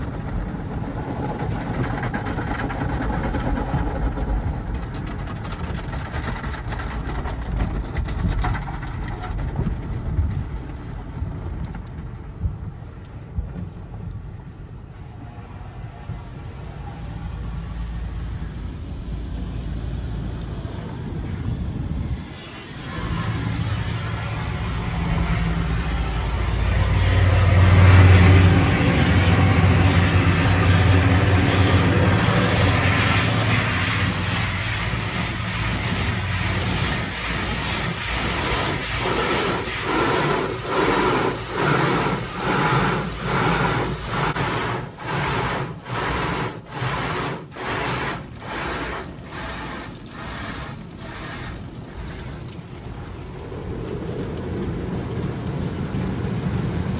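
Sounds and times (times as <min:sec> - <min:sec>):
car wash spraying water: 0:00.0 - 0:56.9
low machine hum: 0:14.2 - 0:56.9.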